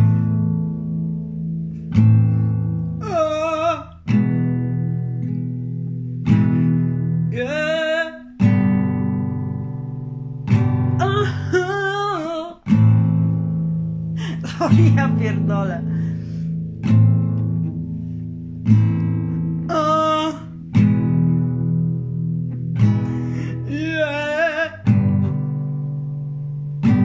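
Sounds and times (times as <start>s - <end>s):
acoustic guitar chords strummed: 0.0s - 27.0s
person singing wordless line: 2.9s - 4.4s, 7.2s - 8.5s, 10.9s - 13.0s, 14.2s - 16.2s, 19.6s - 21.2s, 23.0s - 25.3s.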